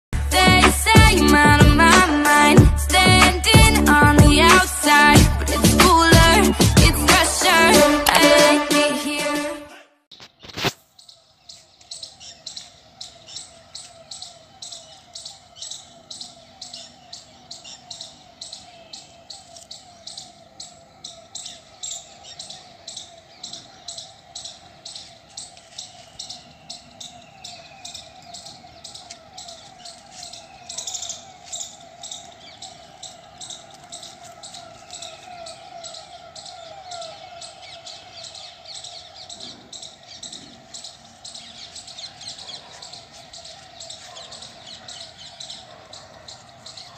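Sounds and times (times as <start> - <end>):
bird sharp repeated chirp: 10.1 - 46.9
birds short sliding calls: 10.2 - 46.9
bird rippling call: 10.3 - 46.9.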